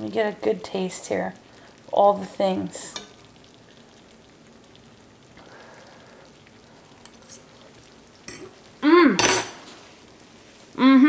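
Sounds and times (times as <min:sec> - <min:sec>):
pot sizzling on stove: 0:00.0 - 0:11.0
woman saying mmm: 0:08.8 - 0:09.2, 0:10.8 - 0:11.0.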